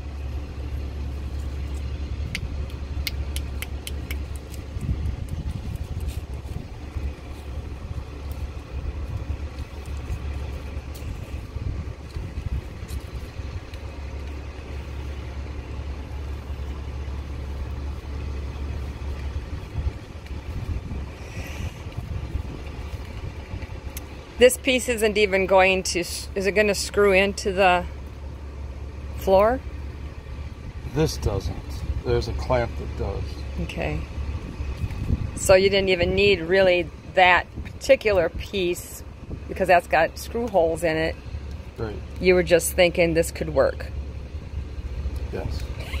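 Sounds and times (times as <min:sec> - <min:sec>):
truck engine rumbling: 0:00.0 - 0:46.0.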